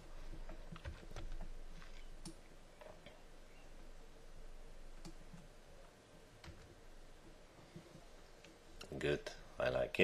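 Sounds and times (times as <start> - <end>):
faint room hum: 0.0 - 10.0
computer mouse clicking: 5.0 - 5.5.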